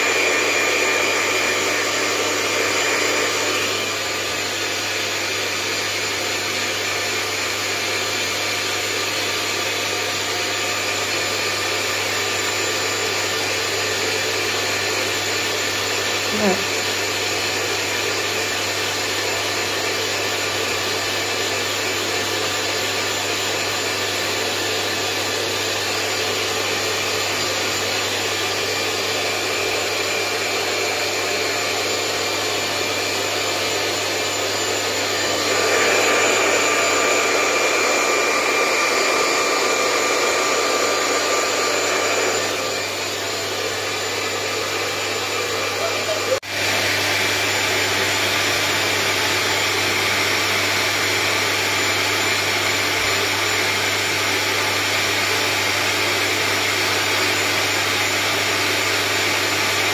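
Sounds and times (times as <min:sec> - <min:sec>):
hair dryer running: 0:00.0 - 0:59.9.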